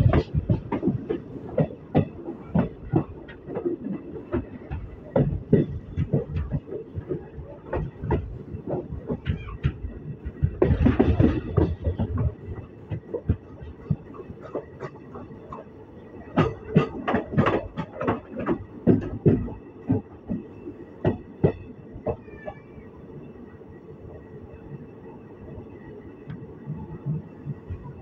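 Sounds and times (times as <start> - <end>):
train wheels clacking over rail joints: 0.0 - 22.7
train running rumble: 0.0 - 28.0.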